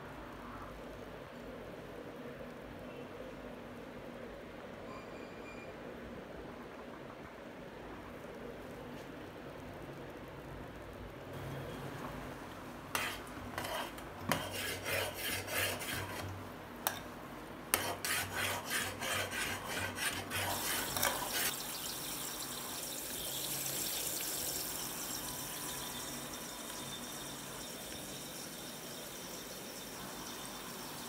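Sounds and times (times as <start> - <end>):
steady hiss of heating milk: 0.0 - 4.7, 6.0 - 31.0
spoon stirring in metal pot: 12.9 - 17.1, 17.7 - 31.0.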